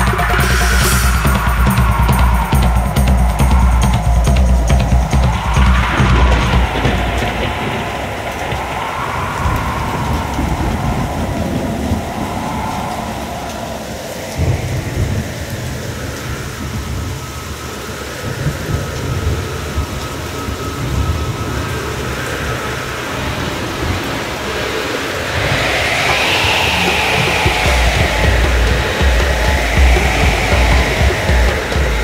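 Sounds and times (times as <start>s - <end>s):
faint rising and falling tone: 0.0s - 8.9s, 25.1s - 32.0s
low rumble: 0.0s - 17.5s, 23.2s - 32.0s
steady rushing noise: 0.0s - 32.0s.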